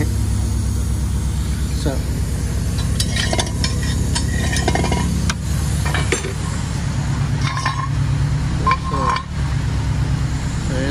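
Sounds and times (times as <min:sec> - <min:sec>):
steady low hum: 0:00.0 - 0:10.9
metal parts clinking and rattling: 0:02.7 - 0:06.5, 0:07.4 - 0:08.0, 0:08.6 - 0:09.4.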